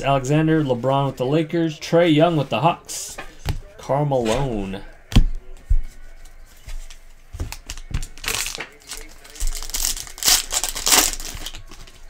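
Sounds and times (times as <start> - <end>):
foil wrapper crinkling and tearing: 7.5 - 12.0.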